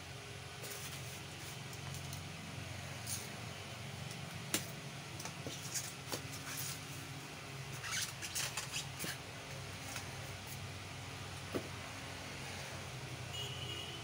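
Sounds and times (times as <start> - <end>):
small taps and rustling scrapes: 0.6 - 2.3, 4.0 - 7.1, 7.7 - 10.7.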